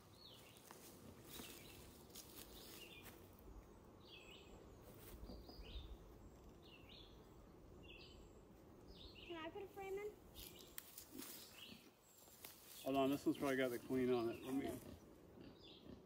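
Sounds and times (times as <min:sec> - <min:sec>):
low outdoor hiss: 0:00.0 - 0:15.7
faint bird song: 0:00.0 - 0:16.0.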